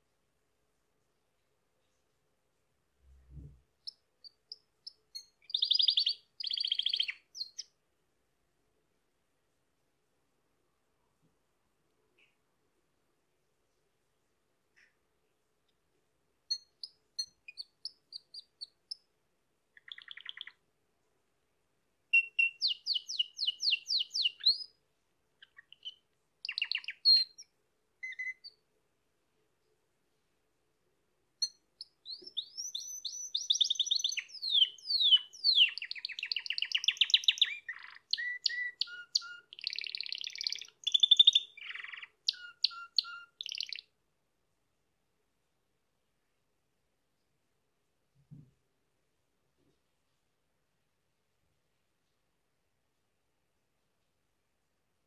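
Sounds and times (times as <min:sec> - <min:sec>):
canary singing trills: 0:03.3 - 0:07.8, 0:16.5 - 0:19.1, 0:19.8 - 0:20.6, 0:22.1 - 0:24.8, 0:25.4 - 0:28.6, 0:31.4 - 0:43.9.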